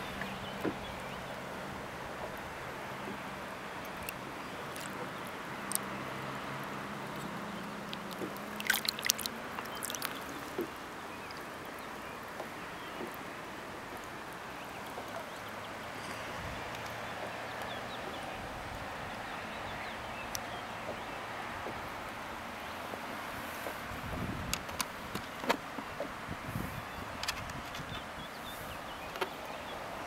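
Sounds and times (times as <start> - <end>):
steady wash of water: 0.0 - 27.0
water splashing: 2.9 - 15.5.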